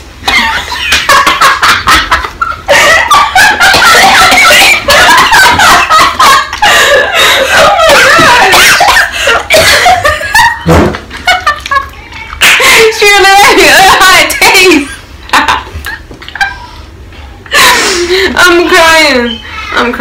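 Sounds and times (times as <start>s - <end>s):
girls laughing and squealing: 0.3s - 10.6s.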